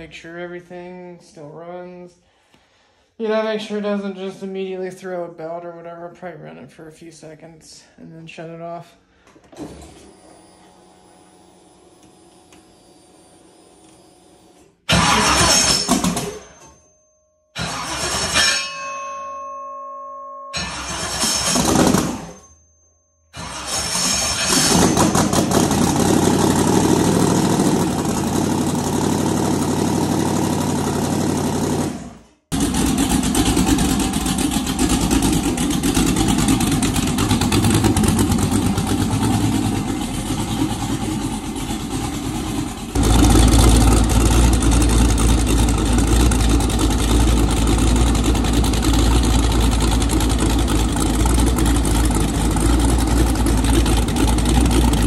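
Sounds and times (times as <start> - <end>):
car engine running: 23.4 - 55.0.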